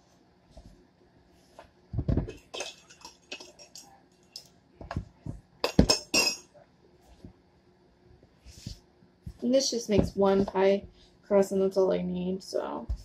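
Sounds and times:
kitchenware clinking on counter: 0:02.1 - 0:03.9, 0:05.6 - 0:06.5.

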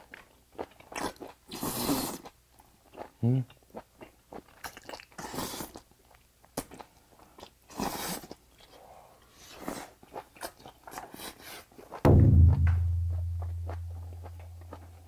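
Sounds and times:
chewing and biting food: 0:00.0 - 0:08.7, 0:09.6 - 0:12.0.

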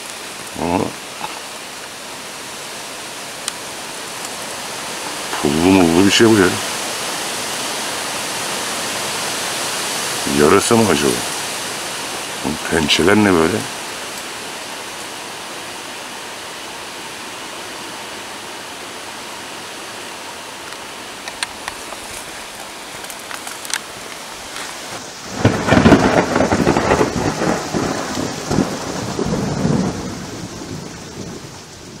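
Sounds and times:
rain: 0:00.0 - 0:32.0
steady background hiss: 0:00.0 - 0:32.0
rumbling crackling thunder: 0:25.0 - 0:32.0.

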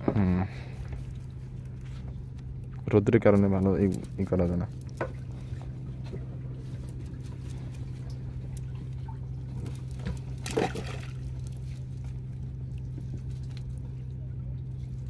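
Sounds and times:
boat engine idling: 0:00.0 - 0:15.0
water trickling and dripping: 0:02.3 - 0:15.0.

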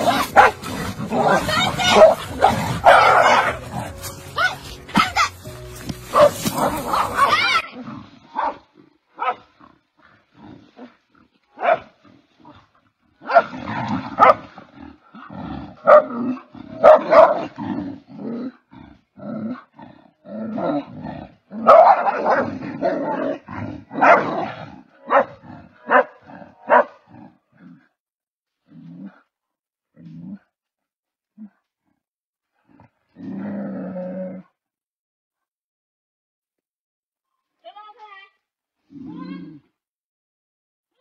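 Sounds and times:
dogs barking and yelping: 0:00.0 - 0:07.8, 0:09.2 - 0:09.5, 0:13.2 - 0:13.5, 0:14.2 - 0:14.5, 0:15.8 - 0:16.2, 0:16.8 - 0:17.5, 0:21.6 - 0:22.5, 0:23.2 - 0:27.0
dogs growling: 0:00.0 - 0:28.0.

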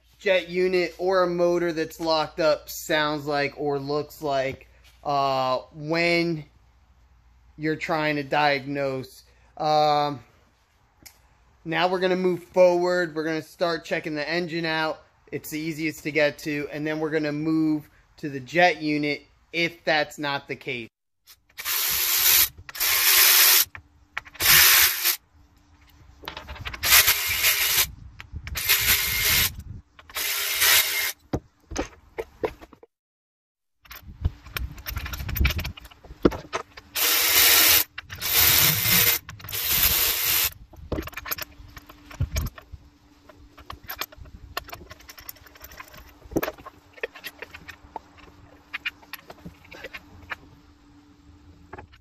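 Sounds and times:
cordless power ratchet bursts: 0:21.5 - 0:23.7, 0:24.4 - 0:25.2, 0:26.8 - 0:27.9, 0:28.5 - 0:31.2, 0:36.9 - 0:40.6.

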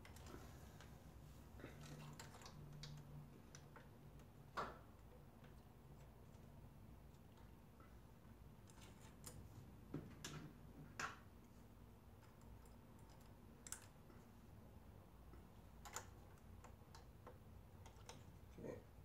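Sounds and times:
faint clicks and taps: 0:01.6 - 0:08.0, 0:15.2 - 0:18.6.

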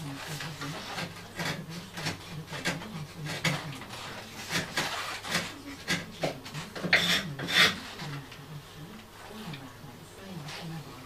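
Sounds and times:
hand tool scraping wood: 0:00.0 - 0:08.2.

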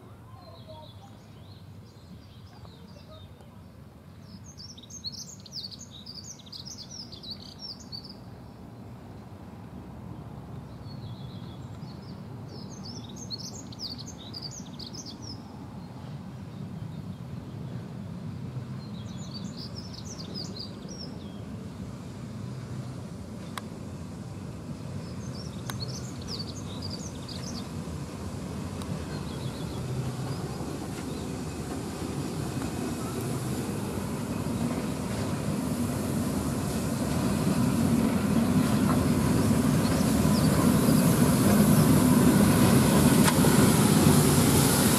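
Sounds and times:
steam locomotive rumbling: 0:12.2 - 0:44.9
birds chirping: 0:38.2 - 0:42.0.

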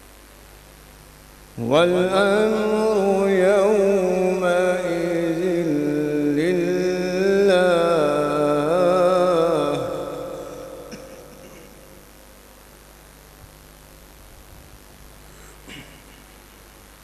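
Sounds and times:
person reciting melodically through microphone: 0:01.6 - 0:12.5.

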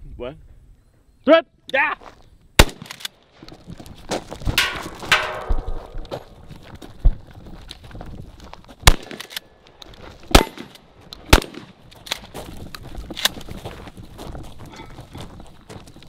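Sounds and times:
shotgun shots: 0:02.6 - 0:03.1, 0:08.8 - 0:09.4, 0:10.3 - 0:11.8.

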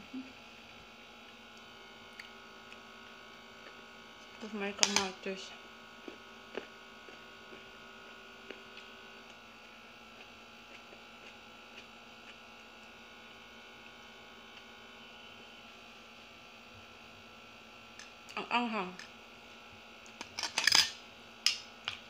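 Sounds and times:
electrical hum: 0:00.0 - 0:22.0
soft chewing: 0:01.2 - 0:04.4, 0:06.0 - 0:13.0.

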